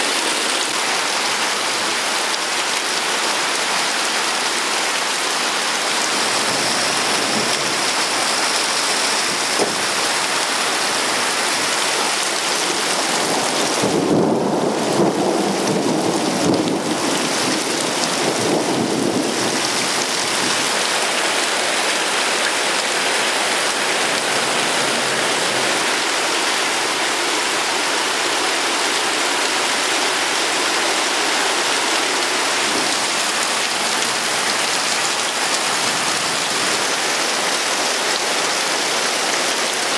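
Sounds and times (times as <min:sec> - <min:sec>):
heavy rain falling: 0:00.0 - 0:39.9
thunder rumbling: 0:13.3 - 0:20.7.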